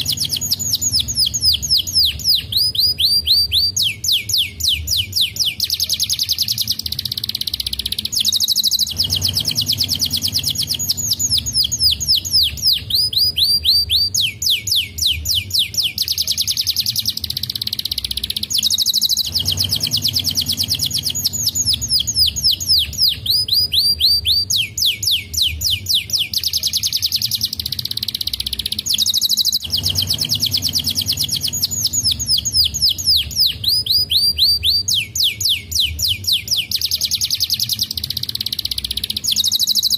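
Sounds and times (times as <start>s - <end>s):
canary singing trills: 0.0s - 39.9s.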